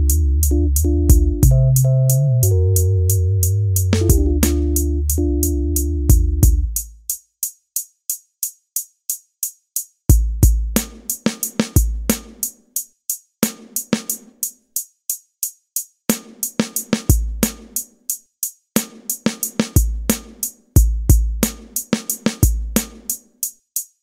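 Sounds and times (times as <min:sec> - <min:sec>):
low bass notes: 0:00.0 - 0:06.8
hi-hat ticks: 0:00.0 - 0:24.0
kick drums: 0:00.9 - 0:01.9, 0:04.0 - 0:04.5, 0:06.1 - 0:07.1, 0:10.1 - 0:11.1, 0:11.8 - 0:12.4, 0:17.1 - 0:17.8, 0:19.8 - 0:23.1
snare hits: 0:04.0 - 0:04.8.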